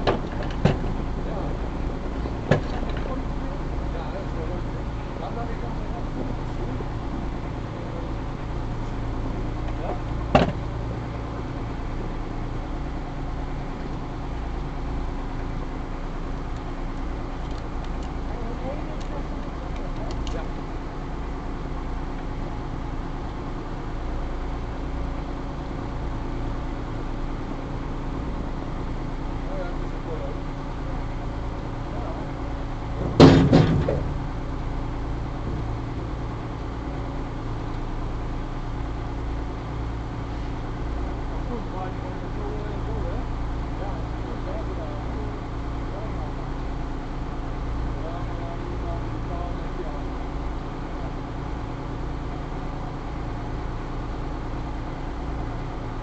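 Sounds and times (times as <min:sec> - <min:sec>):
ferry engine droning: 0:00.0 - 0:56.0
loud clatter: 0:33.0 - 0:34.2.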